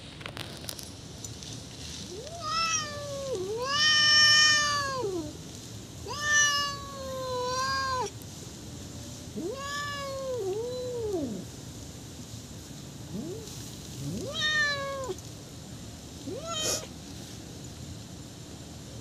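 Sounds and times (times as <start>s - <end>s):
cats meowing: 2.1s - 5.4s, 6.0s - 8.1s, 9.4s - 11.4s, 13.1s - 15.2s, 16.3s - 16.9s.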